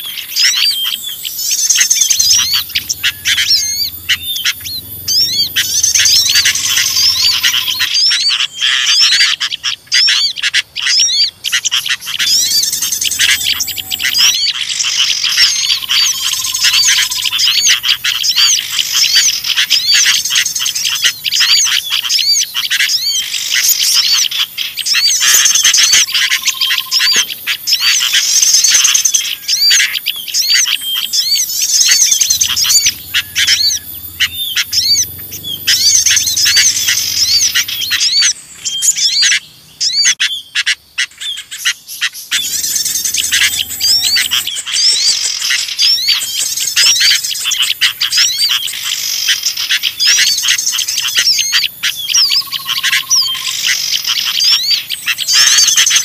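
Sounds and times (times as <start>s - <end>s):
low whistled bird notes: 0.0s - 40.5s, 42.3s - 56.0s
songbirds chirping and twittering: 0.0s - 56.0s.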